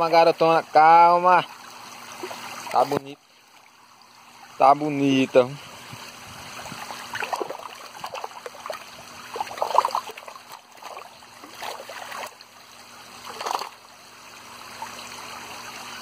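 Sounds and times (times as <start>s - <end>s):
water splashing around a net: 1.4s - 3.7s, 5.8s - 16.0s.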